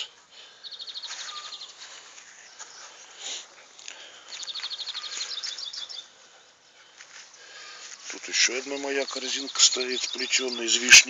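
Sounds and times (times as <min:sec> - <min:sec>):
songbird trilling: 0:04.3 - 0:06.1, 0:08.5 - 0:11.0.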